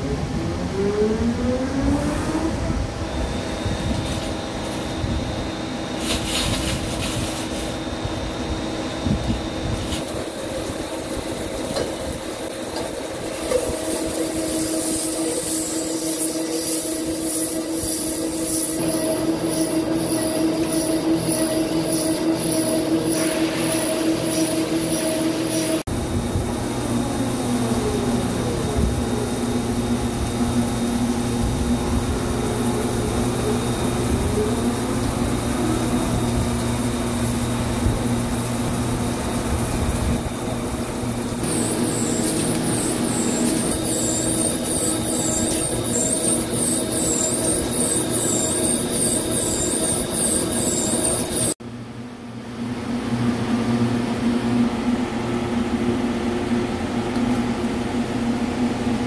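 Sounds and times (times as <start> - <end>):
lathe cutting steel: 10.1 - 25.9, 38.7 - 51.6.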